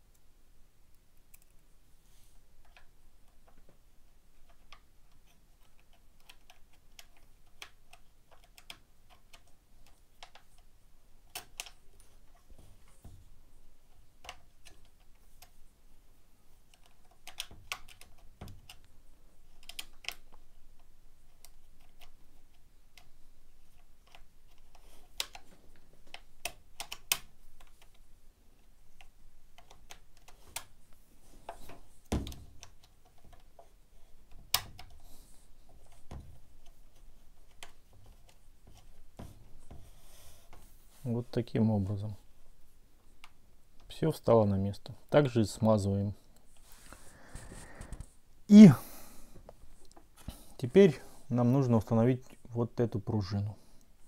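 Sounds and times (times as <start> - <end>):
plastic and metal parts clicking: 4.4 - 13.2, 16.6 - 18.9, 19.5 - 30.8.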